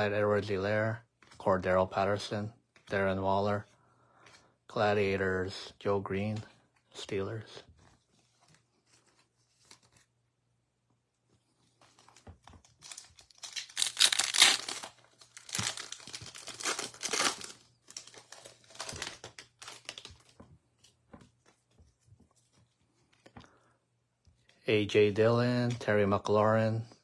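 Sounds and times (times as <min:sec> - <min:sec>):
plastic wrapper tearing and crinkling: 0:11.8 - 0:20.4.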